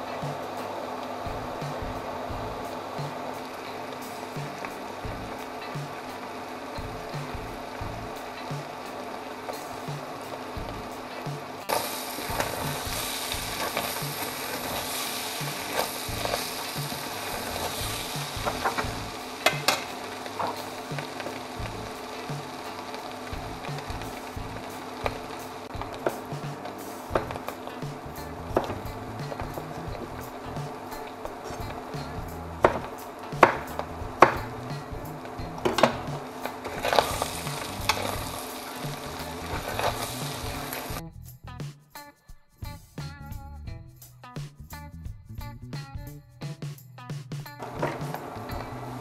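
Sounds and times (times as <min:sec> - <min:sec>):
meat sizzling in a pot: 0:00.0 - 0:41.0, 0:47.6 - 0:49.0
background music: 0:00.0 - 0:49.0.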